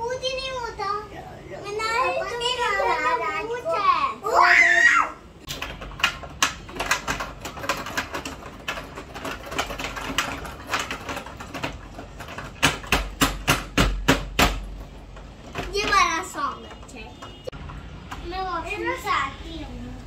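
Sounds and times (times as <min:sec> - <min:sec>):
toy keyboard keys clacking: 0:05.5 - 0:13.5.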